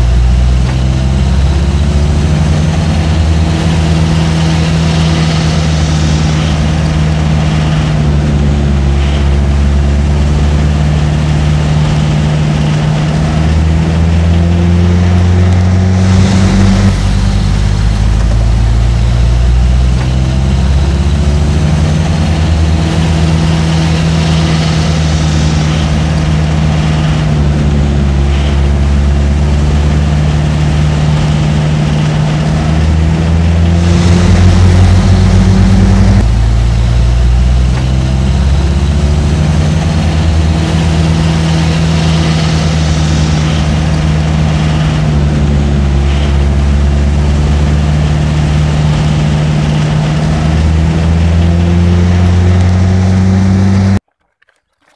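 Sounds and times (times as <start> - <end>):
truck engine running: 0.0 - 54.0.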